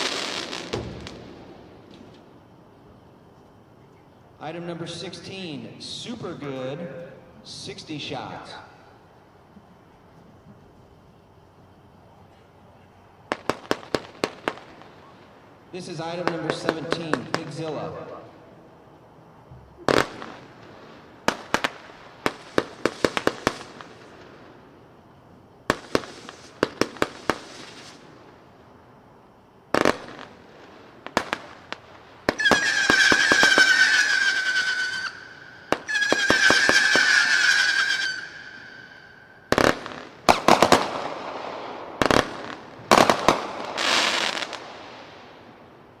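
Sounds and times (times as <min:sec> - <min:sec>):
firework bangs and pops: 0:00.0 - 0:02.3, 0:13.3 - 0:15.0, 0:19.8 - 0:24.5, 0:25.6 - 0:28.4, 0:29.7 - 0:38.3, 0:39.5 - 0:45.5
firework whistles: 0:00.0 - 0:02.3, 0:19.8 - 0:24.5, 0:25.7 - 0:28.2, 0:31.1 - 0:45.5.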